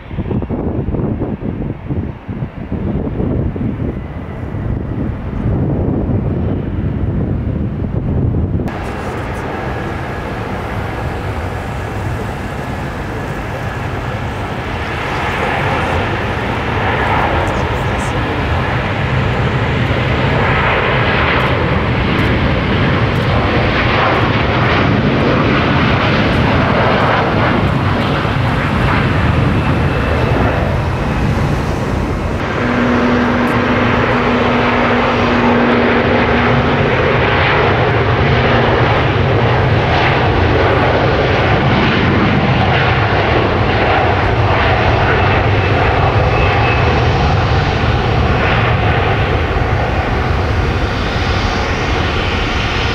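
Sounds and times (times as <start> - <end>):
jet engines roaring: 0.0 - 52.9
steady hum: 8.7 - 24.8, 26.0 - 37.0.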